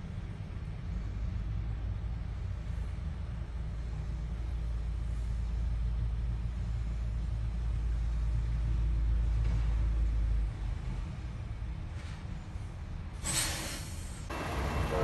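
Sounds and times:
diesel truck engine rumbling: 0:00.0 - 0:15.0.

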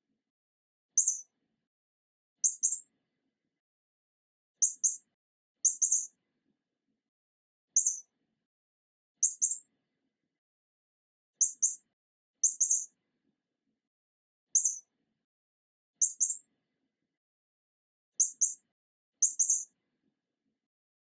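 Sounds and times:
high-pitched bird-like chirps: 0:01.0 - 0:01.3, 0:02.4 - 0:02.9, 0:04.6 - 0:05.1, 0:05.7 - 0:06.1, 0:07.7 - 0:08.1, 0:09.2 - 0:09.7, 0:11.4 - 0:12.9, 0:14.5 - 0:14.9, 0:16.0 - 0:16.5, 0:18.2 - 0:19.7.

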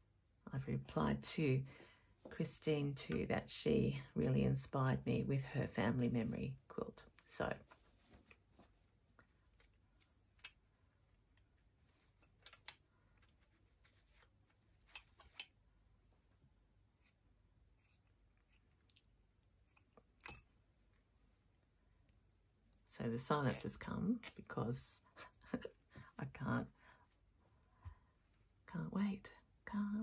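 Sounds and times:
fabric rustling: 0:07.3 - 0:10.4.

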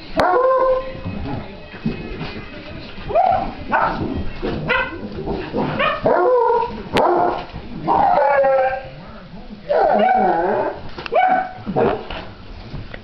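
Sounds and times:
puppies barking and yipping: 0:09.7 - 0:12.0.

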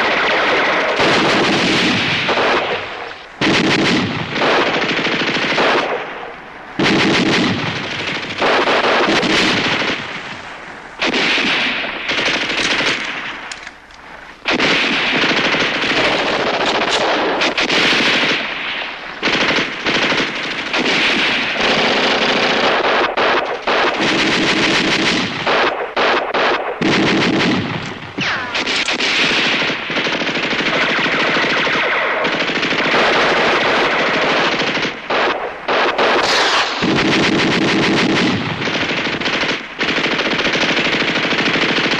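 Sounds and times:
machine-gun bursts: 0:00.0 - 0:10.2, 0:11.0 - 0:13.7, 0:14.5 - 0:41.9
rifle shots: 0:00.0 - 0:41.9.

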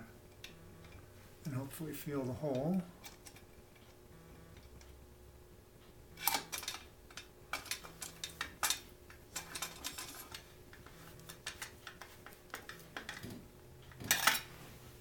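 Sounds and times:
wrench tapping and scraping metal: 0:06.2 - 0:14.5.

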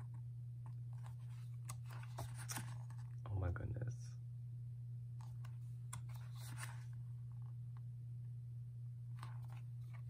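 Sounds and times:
steady low hum: 0:00.0 - 0:10.0
photobook pages turning: 0:00.1 - 0:03.2, 0:05.2 - 0:07.6, 0:09.1 - 0:10.0.

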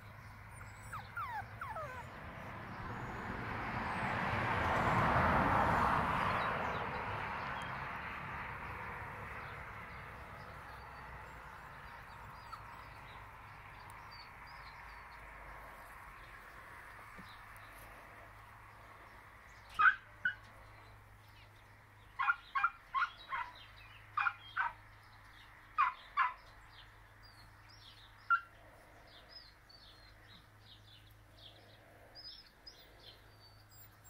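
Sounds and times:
puppy whimpering: 0:00.5 - 0:02.5.

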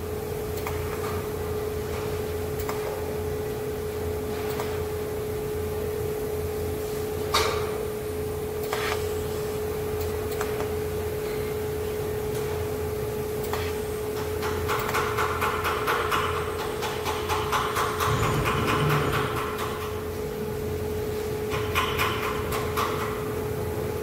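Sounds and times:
hammer on metal sheet: 0:14.4 - 0:20.0
electrical hum: 0:17.5 - 0:21.8.

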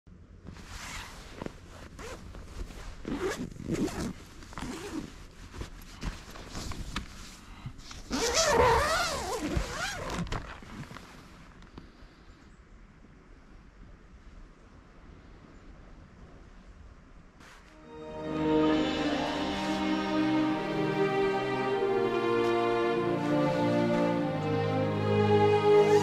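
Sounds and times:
tent zipper pulled open: 0:00.5 - 0:05.3, 0:07.9 - 0:11.4.

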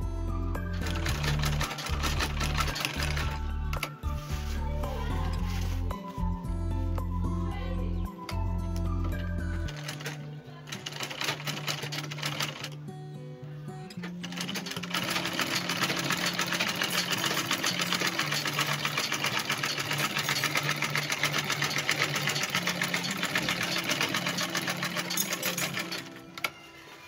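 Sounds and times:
sewing machine stitching: 0:00.7 - 0:03.9, 0:09.2 - 0:12.8, 0:14.0 - 0:26.6.

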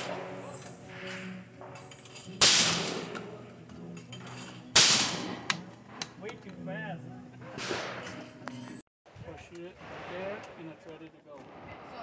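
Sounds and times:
shotgun shots echoing: 0:02.4 - 0:03.4, 0:04.7 - 0:06.0, 0:07.6 - 0:08.2.

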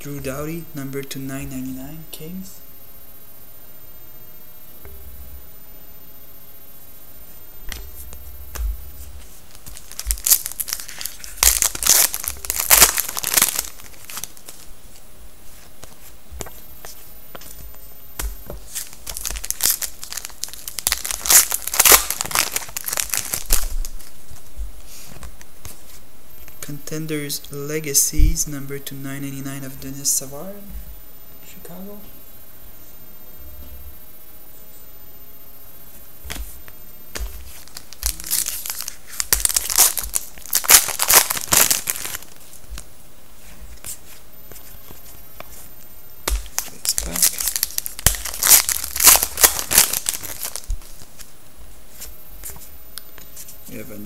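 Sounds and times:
foil wrapper tearing and crinkling: 0:09.5 - 0:14.7, 0:18.6 - 0:24.1, 0:37.5 - 0:42.6, 0:46.3 - 0:51.3.

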